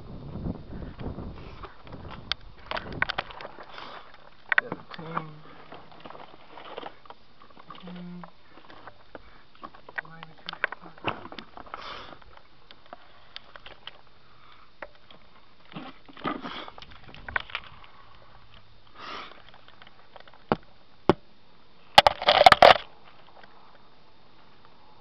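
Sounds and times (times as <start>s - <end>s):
microphone handling clicks and rustles: 0.8s - 14.1s, 14.8s - 20.7s, 21.9s - 23.6s
short breaths: 3.6s - 4.2s, 11.7s - 12.2s.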